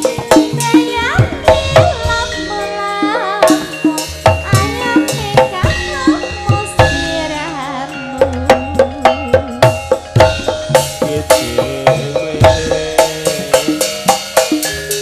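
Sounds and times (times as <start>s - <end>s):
woman singing into a microphone: 0.0s - 10.4s
hand drum strokes: 0.0s - 15.0s
ringing pitched percussion: 0.0s - 15.0s.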